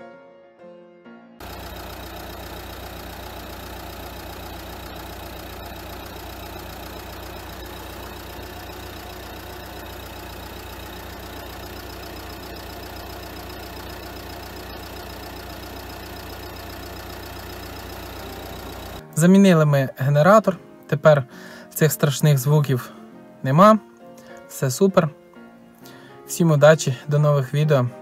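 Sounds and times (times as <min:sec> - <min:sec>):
diesel engine idling: 0:01.4 - 0:19.0.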